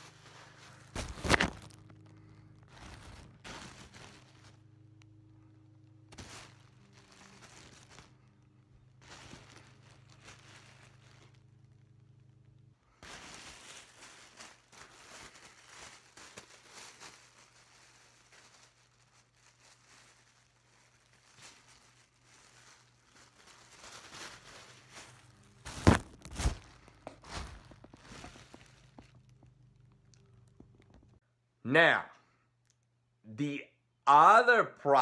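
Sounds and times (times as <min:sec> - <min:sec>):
plastic packing film crinkling: 0:00.0 - 0:05.0, 0:05.8 - 0:31.2
loud close crackles and thumps: 0:00.8 - 0:04.3, 0:23.8 - 0:31.2.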